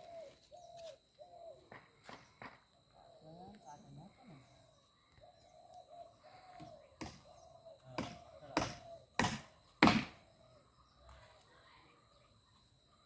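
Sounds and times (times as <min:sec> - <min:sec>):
footsteps on bare ground: 0:00.0 - 0:01.2
dove cooing: 0:00.0 - 0:02.0, 0:04.5 - 0:09.2.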